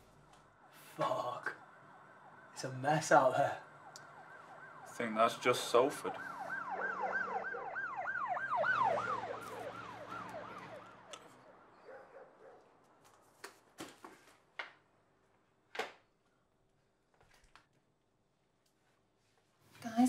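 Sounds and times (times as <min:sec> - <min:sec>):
emergency vehicle siren: 0:00.0 - 0:13.6.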